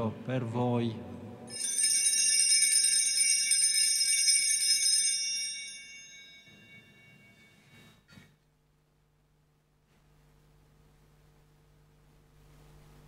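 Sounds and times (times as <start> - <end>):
small bells shaken and ringing: 1.5 - 7.7.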